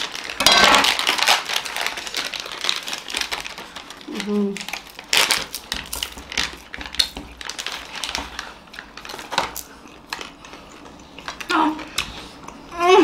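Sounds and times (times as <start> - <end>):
plastic wrapper crinkling: 0.0 - 12.1.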